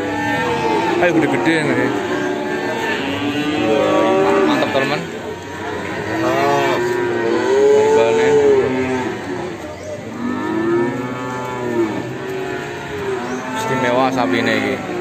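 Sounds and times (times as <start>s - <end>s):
calves mooing: 0.0s - 15.0s.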